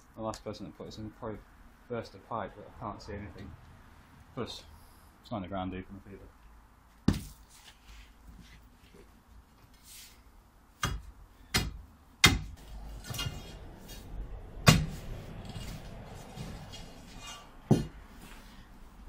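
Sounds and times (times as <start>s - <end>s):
concrete scraping and crumbling: 14.8s - 18.4s.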